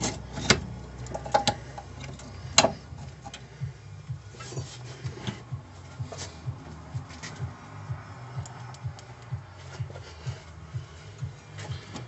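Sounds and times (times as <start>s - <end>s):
metal brake parts clicking: 0.0s - 3.4s.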